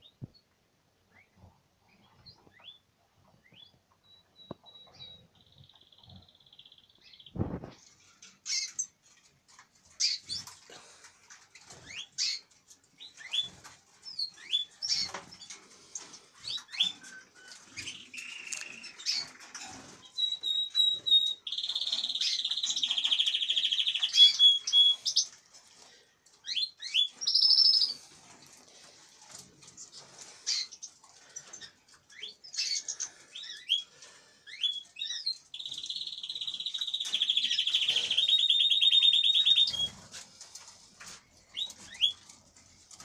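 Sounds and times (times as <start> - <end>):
finches chirping: 30.5 - 40.0.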